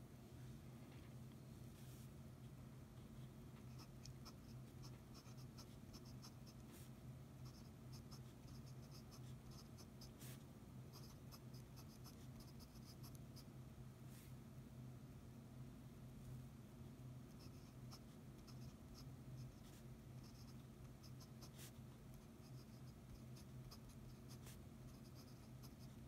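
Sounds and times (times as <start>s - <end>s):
steady low hum: 0.0s - 26.0s
pen nib scratching on paper: 3.5s - 13.5s, 17.3s - 26.0s.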